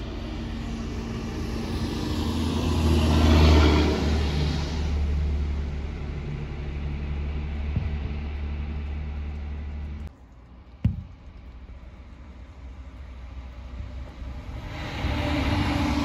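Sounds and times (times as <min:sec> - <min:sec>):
tyres hissing on wet pavement: 0:00.0 - 0:09.8, 0:11.6 - 0:16.0
heavy truck engine rumble: 0:00.0 - 0:16.0.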